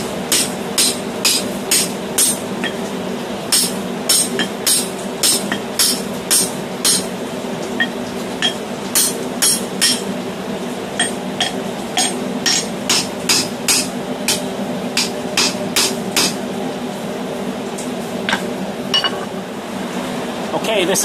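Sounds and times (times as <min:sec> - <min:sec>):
steady low hum: 0:00.0 - 0:20.5
hammer striking metal: 0:00.3 - 0:02.8, 0:03.5 - 0:07.1, 0:07.8 - 0:10.0, 0:11.0 - 0:14.4, 0:15.0 - 0:16.4, 0:18.3 - 0:19.3.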